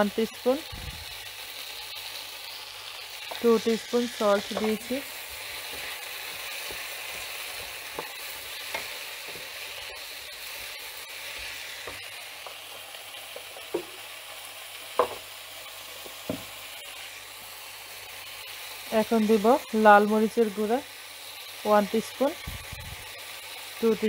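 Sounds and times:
vegetables sizzling in oil: 0:00.0 - 0:24.0
wooden spoon knocking pan: 0:04.5 - 0:04.9, 0:13.7 - 0:14.0, 0:15.0 - 0:15.3, 0:16.1 - 0:16.5.

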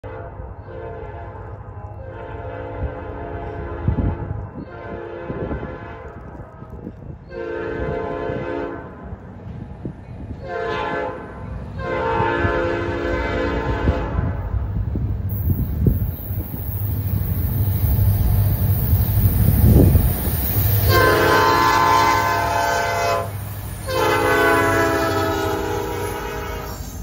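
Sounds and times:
locomotive air horn blasts: 0:02.0 - 0:06.1, 0:07.3 - 0:09.0, 0:10.4 - 0:14.4, 0:20.8 - 0:27.0.

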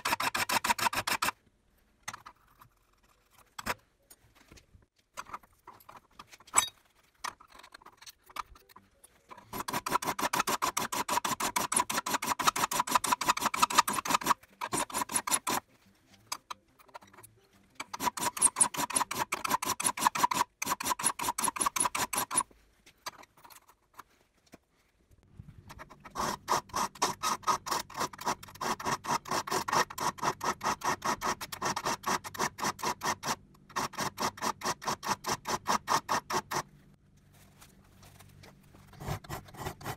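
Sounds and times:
file scraping saw teeth: 0:00.0 - 0:01.4, 0:09.4 - 0:15.7, 0:17.8 - 0:22.5, 0:25.7 - 0:36.7, 0:38.9 - 0:39.9.

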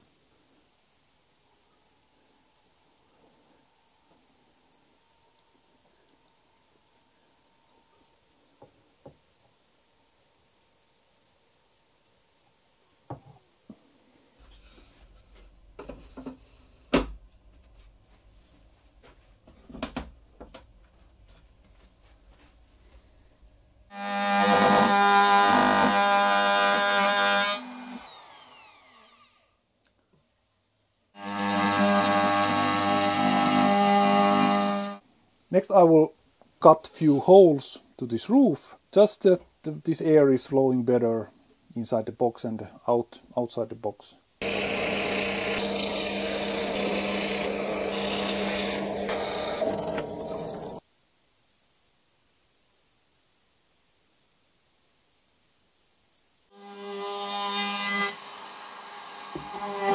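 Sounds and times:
drill bit rasping through plywood: 0:23.9 - 0:29.4, 0:31.2 - 0:35.0, 0:44.4 - 0:50.8
electric trim router whining: 0:23.9 - 0:29.4, 0:31.2 - 0:35.0, 0:44.4 - 0:50.8
drill press motor hum: 0:44.4 - 0:50.8.

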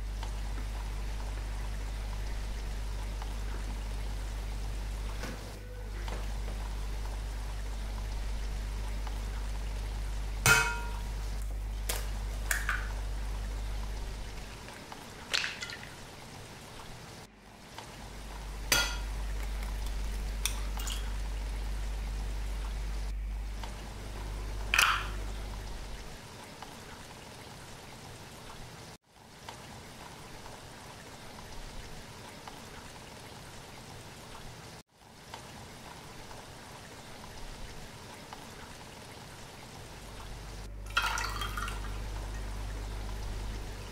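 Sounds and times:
low hum: 0:00.0 - 0:15.0, 0:17.2 - 0:26.2, 0:39.9 - 0:43.9
oil pouring into glass dish: 0:40.9 - 0:41.9.

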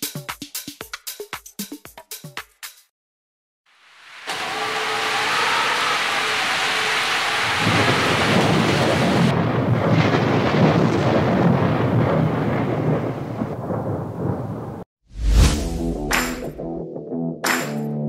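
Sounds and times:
music: 0:00.0 - 0:02.9, 0:15.5 - 0:18.0
hail and rain falling: 0:05.8 - 0:14.4.

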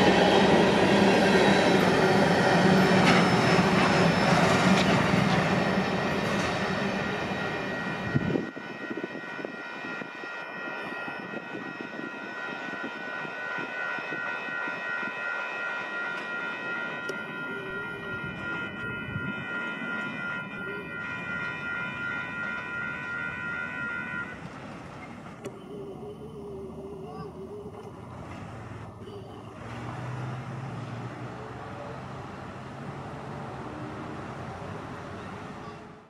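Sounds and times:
railroad crossing bell ringing: 0:00.0 - 0:28.1
train cars rumbling on rails: 0:00.0 - 0:36.0.

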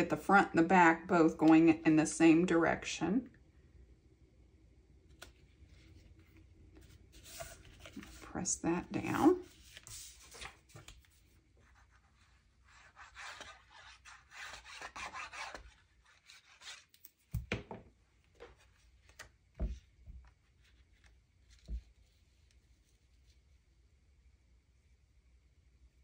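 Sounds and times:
paper rubbing and rustling: 0:05.2 - 0:08.4, 0:09.4 - 0:17.4.

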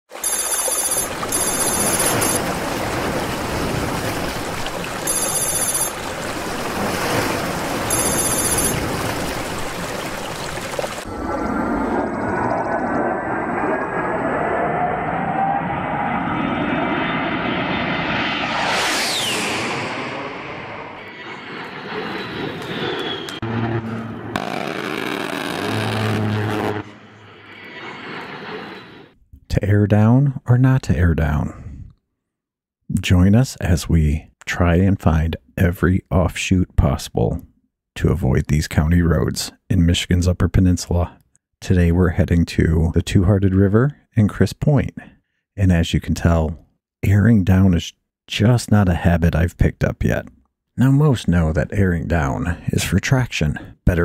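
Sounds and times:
high ringing tone: 0:00.1 - 0:02.4, 0:05.0 - 0:06.1, 0:07.9 - 0:08.8
surf breaking on shore: 0:00.1 - 0:11.1.

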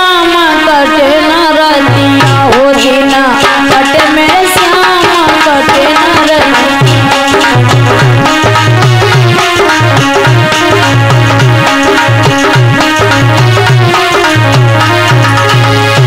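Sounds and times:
woman singing wordless melody: 0:00.0 - 0:07.3
held drone note: 0:00.5 - 0:16.0
hand drum beat: 0:03.5 - 0:16.0.

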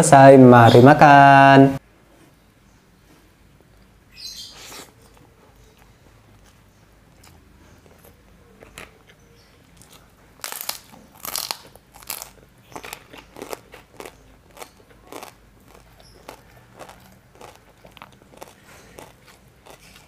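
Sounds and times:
soft chewing: 0:03.0 - 0:20.0
cracker crunching: 0:04.6 - 0:20.0.

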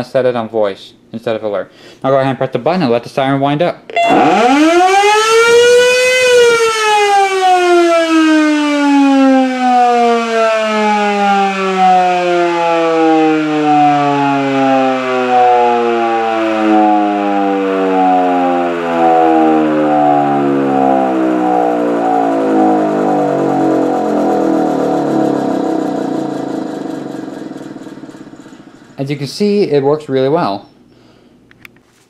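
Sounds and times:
electromechanical siren winding: 0:03.9 - 0:07.6, 0:11.8 - 0:29.0.

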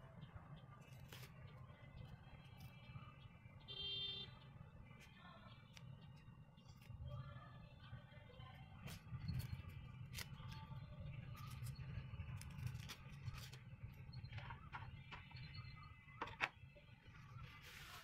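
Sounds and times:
onion skin rustling and crackling: 0:00.8 - 0:03.0, 0:08.8 - 0:14.1.

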